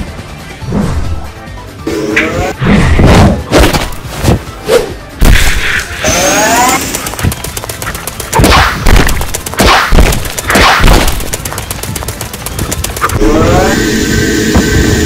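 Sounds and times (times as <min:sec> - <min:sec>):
rapid sharp shots: 0:05.2 - 0:13.3.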